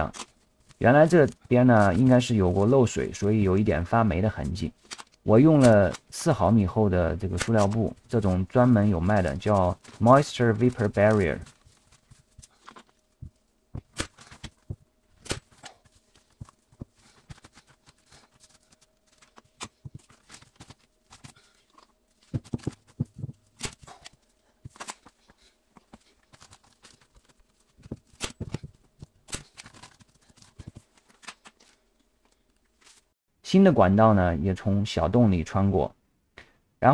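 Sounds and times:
faint steady hum: 0.0 - 33.1
plastic sheeting crinkling: 7.2 - 31.9.

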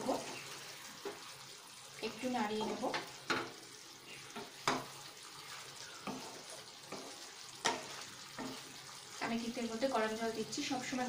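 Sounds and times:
spatula stirring curry: 0.0 - 9.4
curry sizzling: 0.0 - 11.0
spatula knocking against pan: 6.9 - 8.6.

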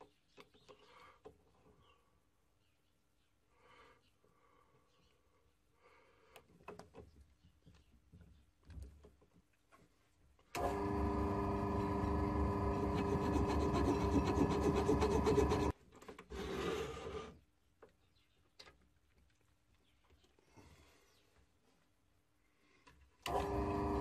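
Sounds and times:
metal lathe running: 10.6 - 15.7.

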